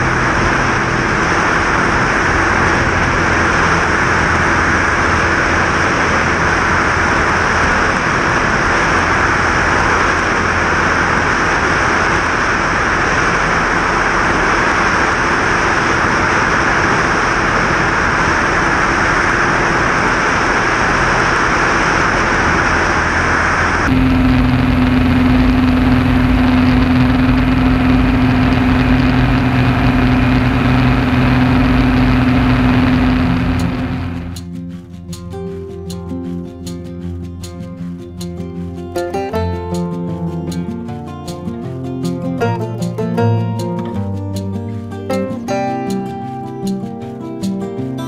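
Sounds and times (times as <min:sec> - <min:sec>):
cockpit drone with hum: 0:00.0 - 0:34.6
rushing slipstream wind: 0:00.0 - 0:35.0
light aircraft engine and propeller: 0:00.0 - 0:48.0.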